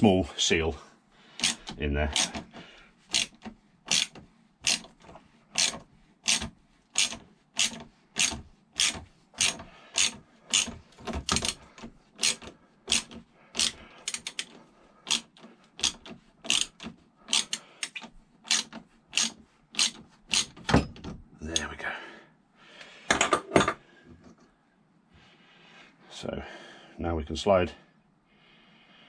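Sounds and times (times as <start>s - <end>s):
ratchet wrench clicking: 1.4s - 2.4s, 3.1s - 4.9s, 5.6s - 11.6s, 12.2s - 14.5s, 15.1s - 20.6s.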